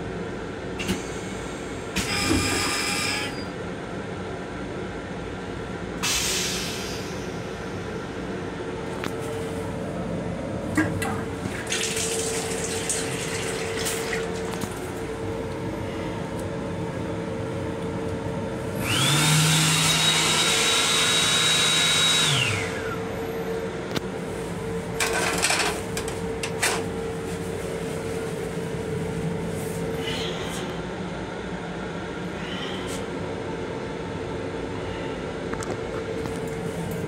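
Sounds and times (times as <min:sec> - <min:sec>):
hand dryer blower whine: 0:02.0 - 0:03.4, 0:18.8 - 0:23.1
steady hum: 0:03.6 - 0:19.7, 0:22.3 - 0:37.0
water from faucet: 0:11.5 - 0:14.4.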